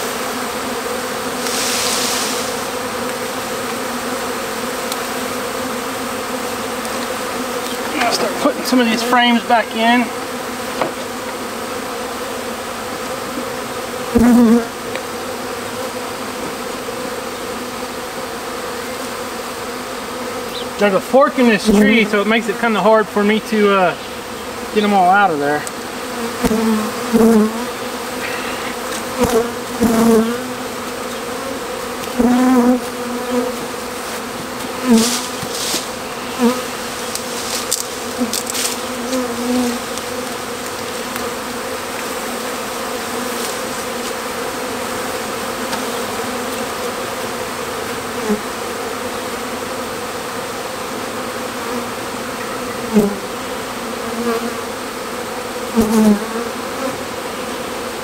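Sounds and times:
bee swarm humming: 0:00.0 - 0:58.0
bees zipping past: 0:00.0 - 0:58.0.

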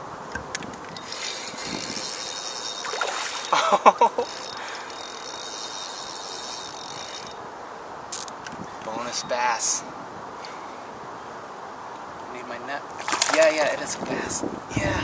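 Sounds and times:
fishing reel whirring: 0:00.9 - 0:07.4.

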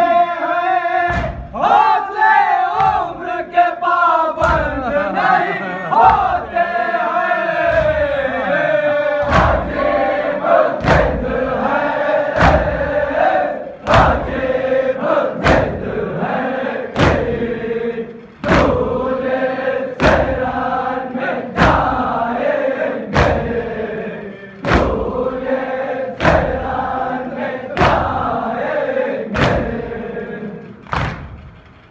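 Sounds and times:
group chanting: 0:00.0 - 0:31.4
chest-beating slaps: 0:09.2 - 0:12.9, 0:23.1 - 0:25.6, 0:26.2 - 0:27.0, 0:27.7 - 0:28.3, 0:29.3 - 0:29.9, 0:30.8 - 0:31.5.

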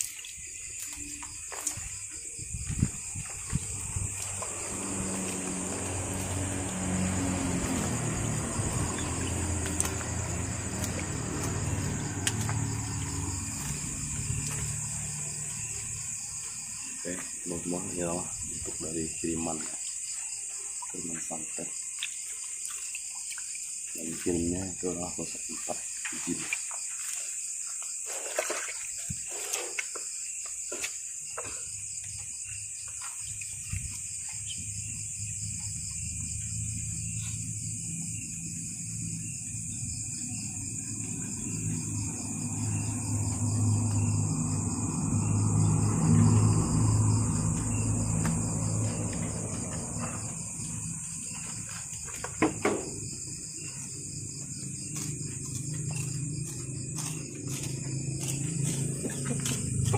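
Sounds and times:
crickets trilling: 0:00.0 - 0:59.9
night insects chirring: 0:00.0 - 0:59.9
low motor rumble: 0:02.4 - 0:19.2, 0:33.6 - 0:59.9
low droning: 0:02.8 - 0:16.4, 0:35.4 - 0:52.2.

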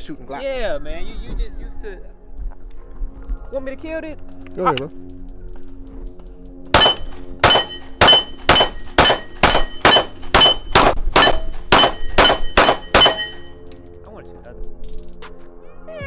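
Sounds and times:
pistol shots: 0:06.7 - 0:13.4.

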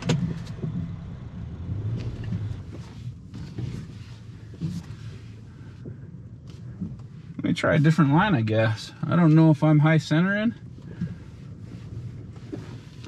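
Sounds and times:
truck engine running low revs: 0:00.0 - 0:04.4
knocks and creaks: 0:00.0 - 0:07.4.

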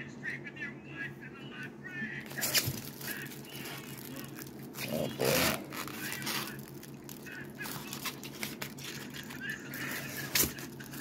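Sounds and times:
plastic wrap crinkling: 0:02.2 - 0:11.0
styrofoam squeaking: 0:02.2 - 0:11.0.

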